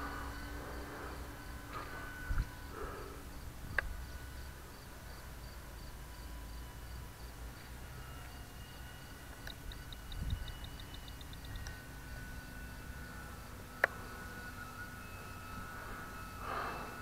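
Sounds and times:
wind rumble on microphone: 0.0 - 2.8, 3.4 - 4.2, 9.4 - 11.8
insect chirping: 0.0 - 17.0
model plane motor whine: 0.0 - 17.0.

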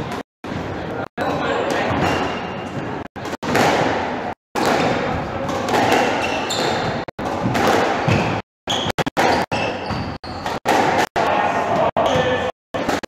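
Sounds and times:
squash ball hitting rackets and walls: 1.7 - 8.4, 9.1 - 13.0
shoes squeaking on wooden floor: 5.9 - 7.1, 8.0 - 10.6.

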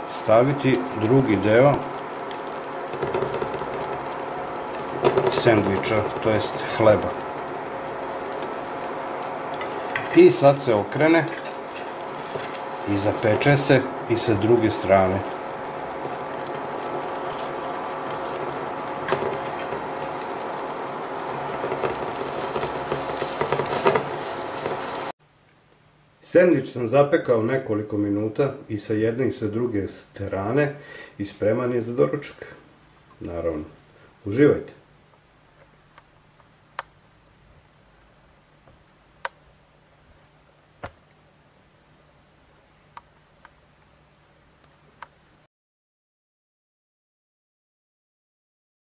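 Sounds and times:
sandwich sizzling in a pan: 0.0 - 25.2.

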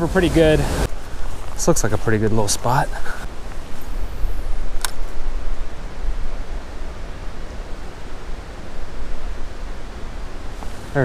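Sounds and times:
sharp click: 4.8 - 5.0.

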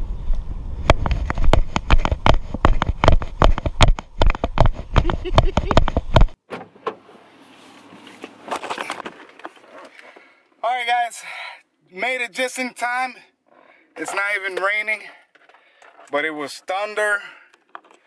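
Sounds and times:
camera knocks and thumps: 0.8 - 6.4.

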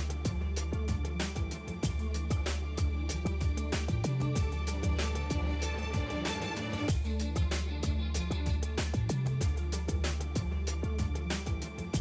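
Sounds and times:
deep held bass: 0.0 - 12.0
instrumental music with beat: 0.0 - 12.0.

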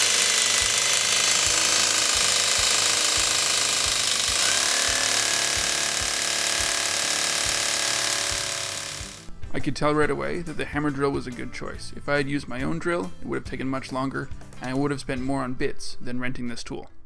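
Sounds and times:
hammer drill boring into brick: 0.0 - 9.3.

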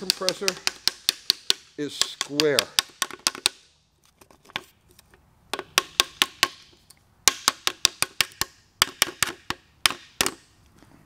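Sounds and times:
hammer tapping on steel: 0.0 - 3.6.

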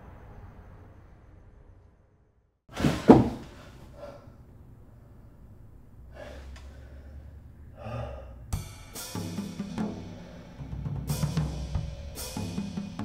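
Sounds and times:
man breathing out hard: 6.1 - 8.5
man gasping: 6.1 - 8.5.

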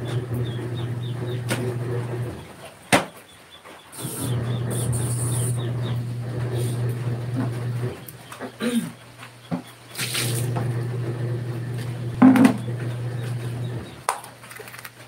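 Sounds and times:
washing machine motor humming: 0.0 - 2.6, 4.0 - 8.8, 9.9 - 14.1.

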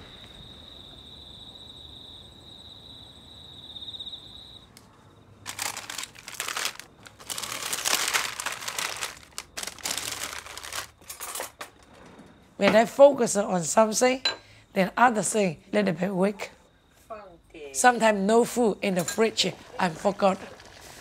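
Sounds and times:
plastic bags crinkling: 5.4 - 11.6.

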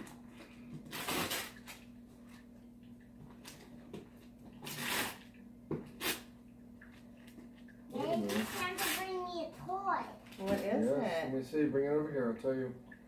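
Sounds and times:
wrapping paper rustling and tearing: 0.0 - 1.9, 4.6 - 5.3, 8.0 - 9.2.

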